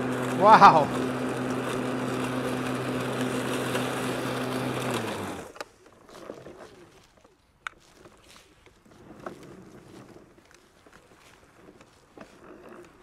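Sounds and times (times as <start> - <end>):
motor winding down: 0.0 - 5.6
electric lawn mower humming: 0.0 - 6.3.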